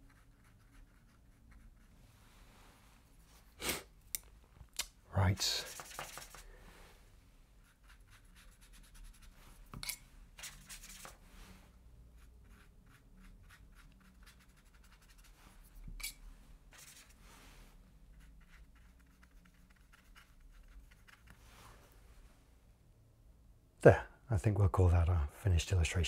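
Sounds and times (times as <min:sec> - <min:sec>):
paintbrush stroking paper: 0:05.4 - 0:06.5, 0:07.6 - 0:09.8, 0:10.4 - 0:15.8, 0:16.7 - 0:22.0.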